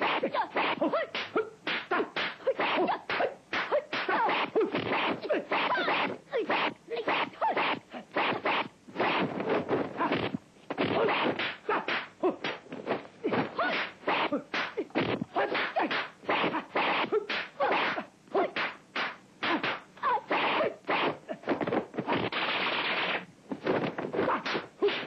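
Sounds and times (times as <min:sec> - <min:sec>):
fighters shouting: 0:00.0 - 0:09.2, 0:13.2 - 0:18.7
punch and kick whacks: 0:00.1 - 0:05.7, 0:08.2 - 0:18.0.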